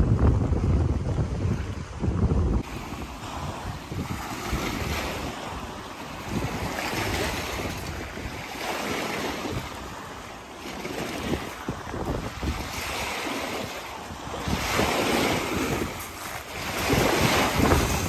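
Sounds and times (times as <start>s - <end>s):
wind buffeting microphone: 0.0s - 18.0s
waves breaking against rocks: 0.2s - 18.0s.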